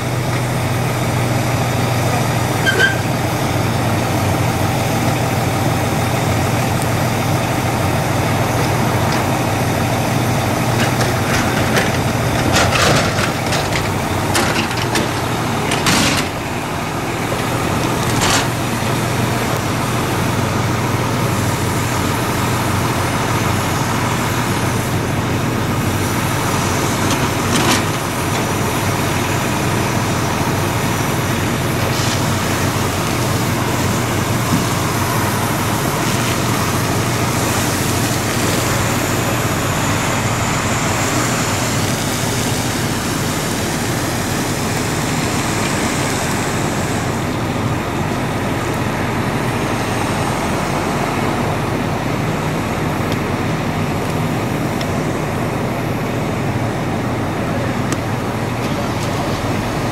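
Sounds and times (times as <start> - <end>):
fire hose spraying water: 0.0 - 12.5, 13.3 - 59.9
diesel engine running: 0.0 - 59.9
steam hissing: 15.0 - 53.0.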